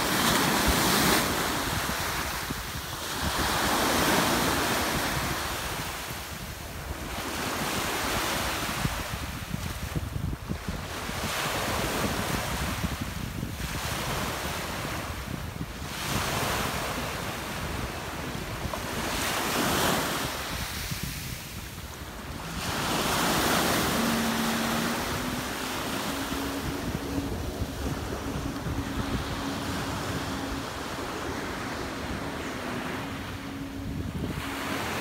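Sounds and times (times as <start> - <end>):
wind buffeting microphone: 0.0 - 35.0
motorboat engine hum: 17.1 - 35.0
waves washing onto rocky shore: 18.7 - 30.9.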